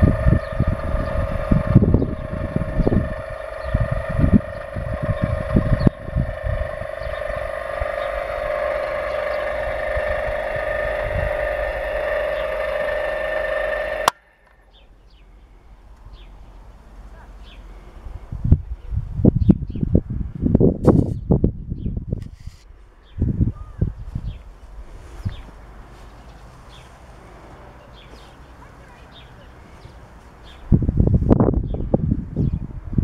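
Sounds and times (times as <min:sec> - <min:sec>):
electric drill motor whining: 0:00.0 - 0:14.6.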